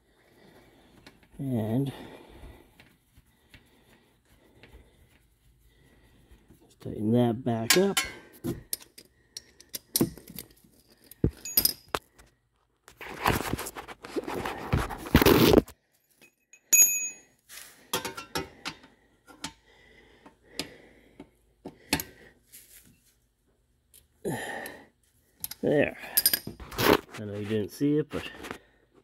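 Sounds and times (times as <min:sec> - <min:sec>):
rustling and scraping: 0:10.2 - 0:16.3, 0:22.4 - 0:23.3, 0:26.5 - 0:28.8.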